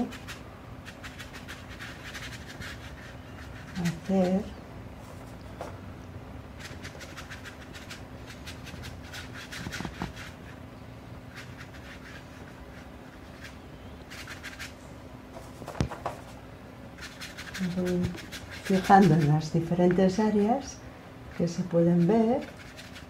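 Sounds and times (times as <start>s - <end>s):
brush scratching on paper: 0.0s - 5.3s, 6.6s - 10.6s, 11.3s - 14.8s, 17.0s - 20.4s, 21.3s - 23.0s
faint steady hum: 0.0s - 23.0s.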